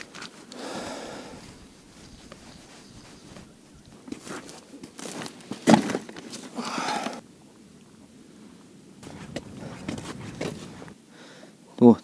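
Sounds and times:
footsteps crunching on wet snow: 0.0s - 6.5s, 9.0s - 11.0s
winter clothing rustling: 0.0s - 7.2s, 9.0s - 11.0s.

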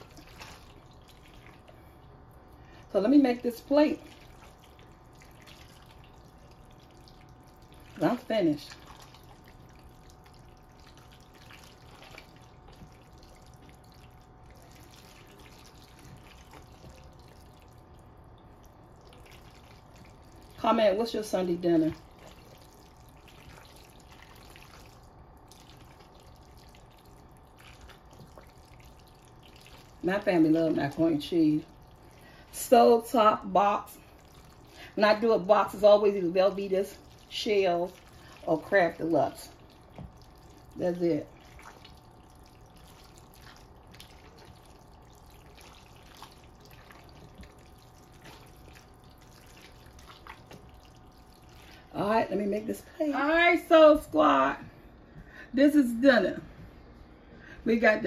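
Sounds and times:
low steady hum: 0.0s - 58.0s
spatula stirring thick food in pot: 36.9s - 51.9s.

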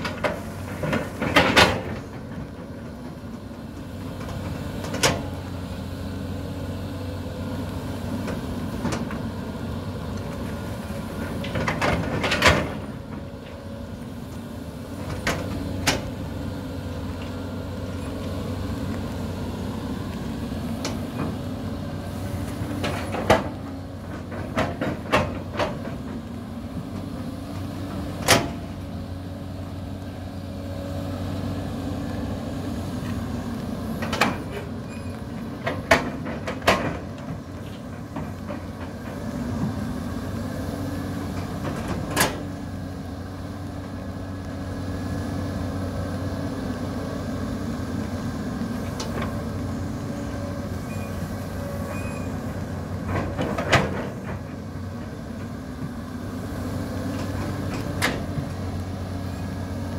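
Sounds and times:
excavator diesel engine running: 0.0s - 59.9s
excavator bucket clanking: 22.7s - 26.2s.

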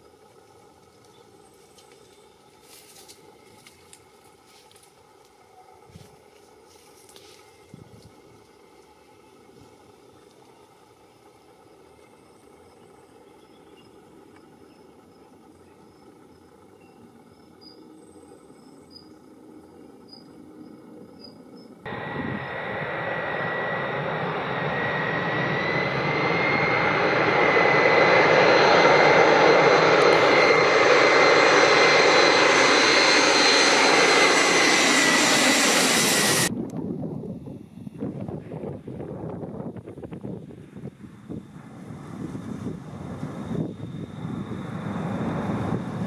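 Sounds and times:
jet airliner engine noise: 0.0s - 46.0s
faint high chirp: 12.1s - 22.6s.

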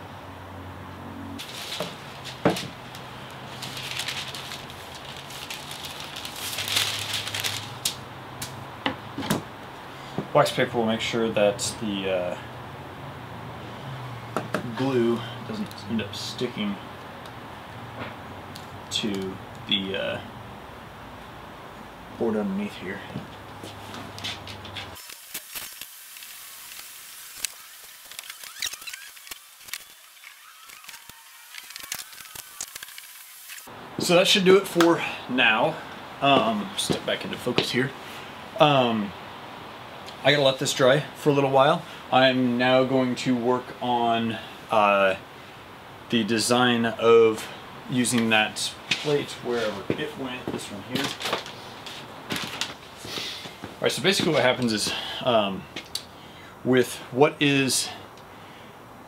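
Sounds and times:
wax paper crinkling: 1.4s - 8.0s, 24.1s - 33.7s, 50.9s - 53.1s
wood knocking on cardboard box: 1.8s - 2.8s
short squeaks: 28.2s - 32.7s.

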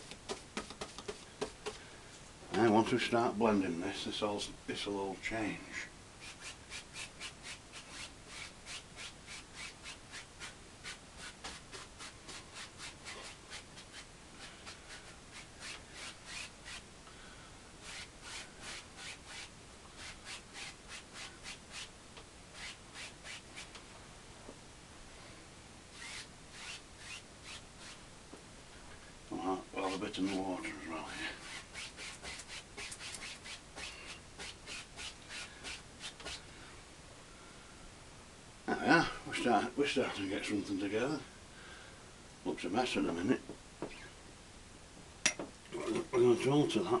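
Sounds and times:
bristle brush scrubbing canvas: 29.8s - 36.4s.

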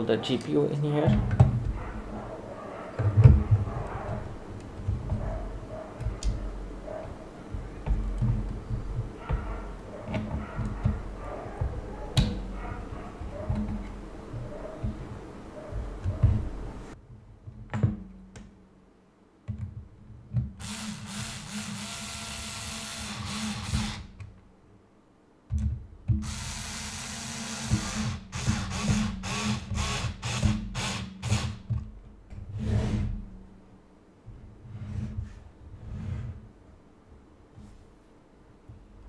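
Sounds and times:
electric screwdriver motor: 20.6s - 24.1s, 26.2s - 31.6s.

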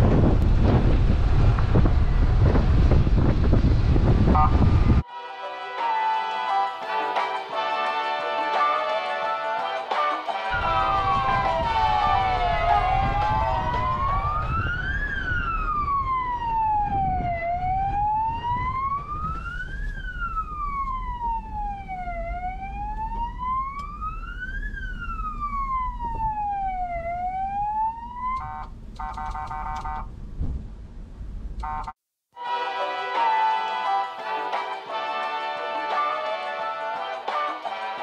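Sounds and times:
low rumble: 0.0s - 5.0s, 10.5s - 29.0s, 29.6s - 31.7s
music with pulsing beat: 5.8s - 14.1s
siren-like wail: 10.5s - 30.0s.

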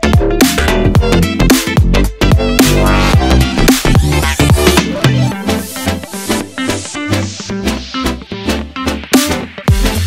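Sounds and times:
electronic music with gliding bass: 0.0s - 10.0s
rising high sweep: 2.6s - 8.1s.

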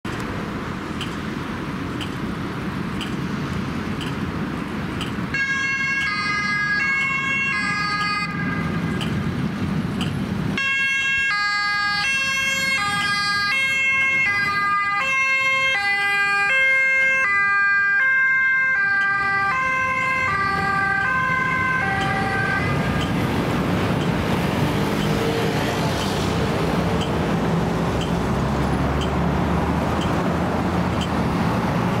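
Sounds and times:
road and tram traffic: 0.0s - 32.0s
two-tone ambulance siren: 5.3s - 9.2s, 10.6s - 25.6s.

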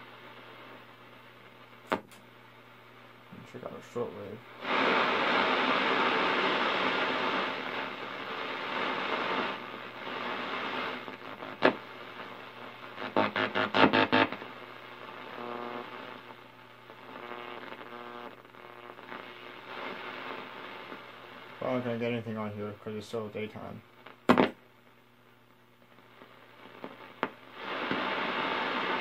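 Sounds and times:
radio static hiss: 0.0s - 29.0s
weak steady radio tones: 0.0s - 29.0s
sharp radio crackle: 0.1s - 25.0s, 25.8s - 29.0s
pulsing radio interference: 12.9s - 20.8s.

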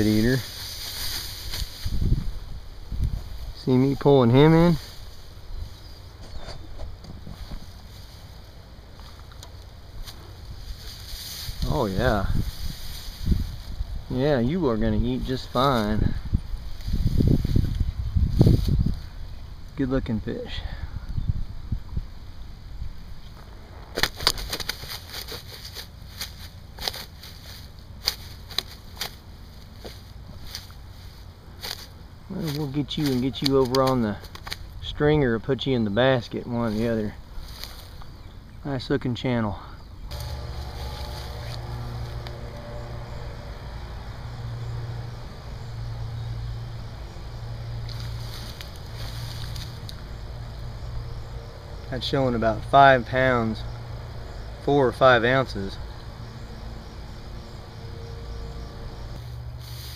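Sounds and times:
wind buffeting microphone: 1.4s - 3.7s, 11.5s - 19.6s
fish flopping on grass: 23.9s - 34.7s, 47.9s - 50.0s
low rumble: 40.0s - 52.8s.

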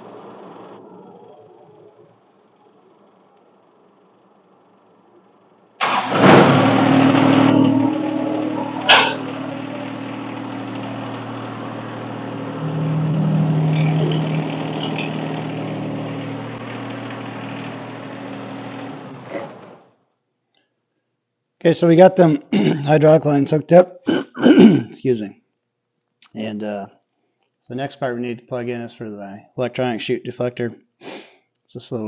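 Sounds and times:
diesel tractor engine idling: 0.0s - 19.9s.

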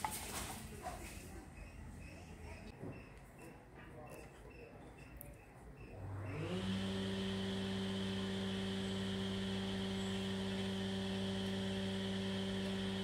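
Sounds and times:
power tool motor humming: 6.1s - 13.0s.

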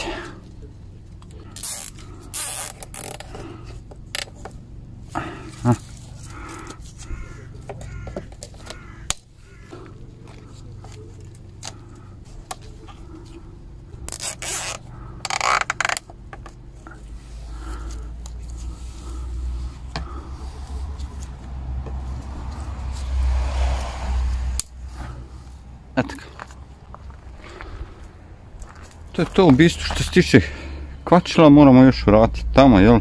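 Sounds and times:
cable tie ratcheting: 1.2s - 4.5s, 14.0s - 16.6s.

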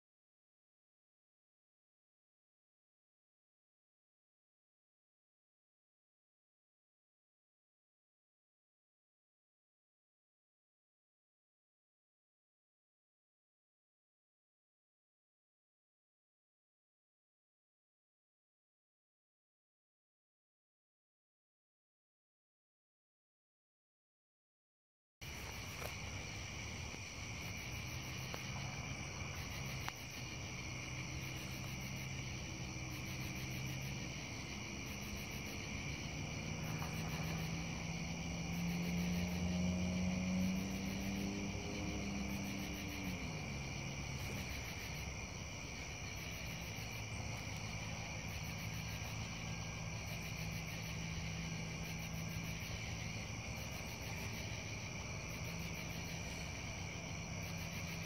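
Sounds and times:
crickets and katydids chirring: 25.2s - 58.0s
low distant engine hum: 25.2s - 58.0s
pulsing high insect chirp: 25.2s - 58.0s.

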